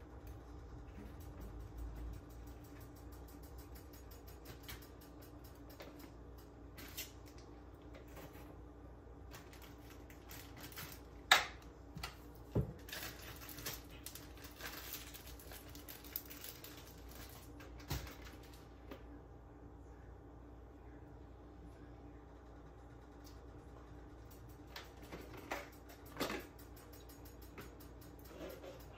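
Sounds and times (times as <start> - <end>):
faint steady hum: 0.0 - 28.9
plastic bag rustling: 9.3 - 11.2, 12.6 - 18.7
clicks and knocks in kitchen: 24.3 - 28.9.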